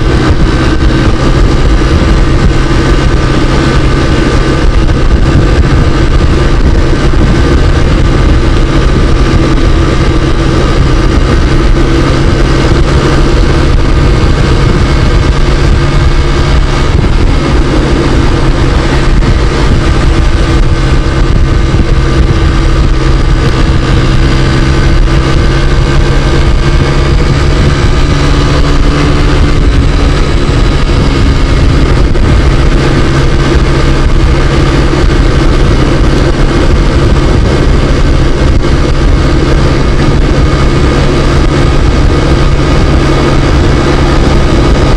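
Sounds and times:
scooter engine running: 0:00.0 - 0:44.9
wind noise on microphone: 0:00.0 - 0:44.9.

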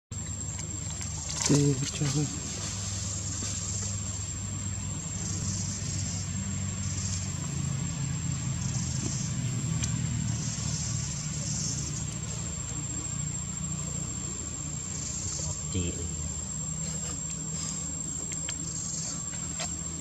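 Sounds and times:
low motor hum: 0:00.1 - 0:20.0.

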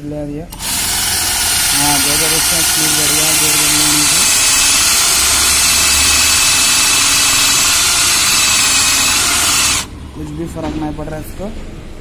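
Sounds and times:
drill grinding on metal plate: 0:00.6 - 0:09.9.

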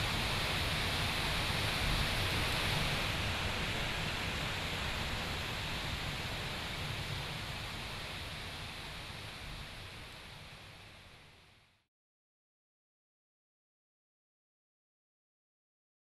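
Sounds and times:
wind through trees: 0:00.0 - 0:11.9.

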